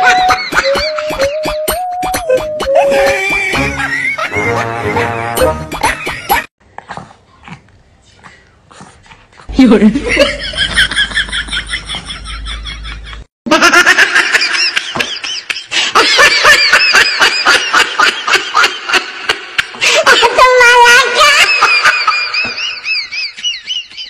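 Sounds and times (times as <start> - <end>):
high-pitched giggling laughter: 0.0 - 6.5, 20.0 - 24.0.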